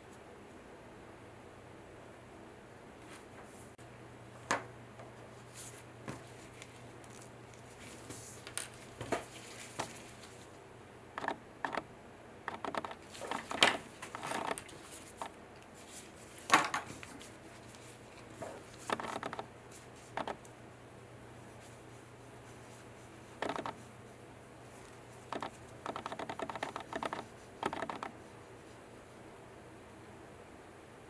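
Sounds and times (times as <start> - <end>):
plastic gloves crinkling: 5.8 - 10.6.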